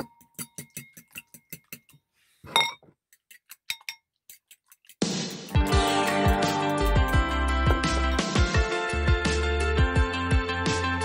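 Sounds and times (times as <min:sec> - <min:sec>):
fork beating eggs in bowl: 0:00.0 - 0:02.0, 0:03.0 - 0:08.3.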